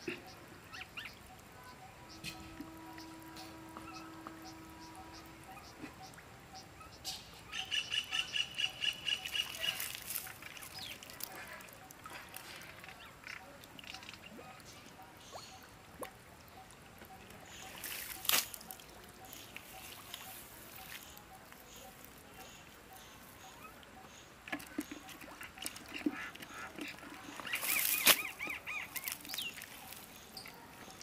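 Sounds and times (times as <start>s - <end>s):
bird calling harsh notes: 0.7s - 11.5s, 27.4s - 30.4s.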